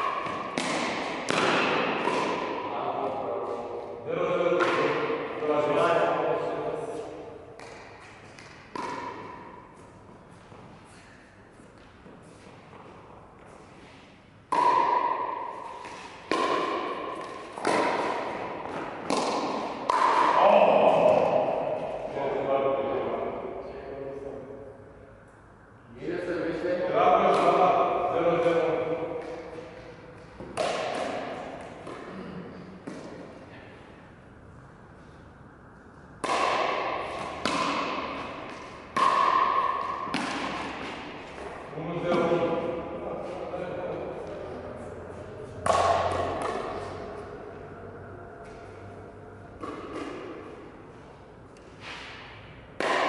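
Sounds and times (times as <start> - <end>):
paddle striking plastic ball: 7.6 - 9.4, 14.5 - 20.4, 30.4 - 31.2, 36.2 - 41.5.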